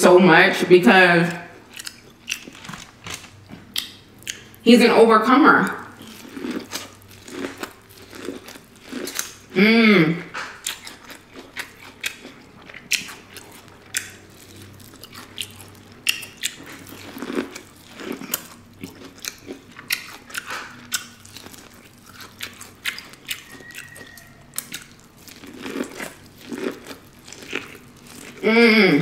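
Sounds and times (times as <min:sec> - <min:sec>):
biting and chewing corn: 0:01.6 - 0:04.6, 0:05.9 - 0:09.5, 0:10.4 - 0:28.4.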